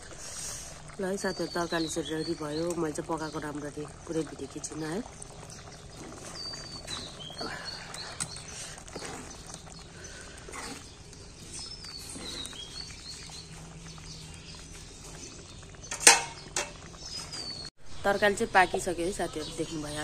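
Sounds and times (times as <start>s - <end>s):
birds chirping: 0.1s - 20.0s.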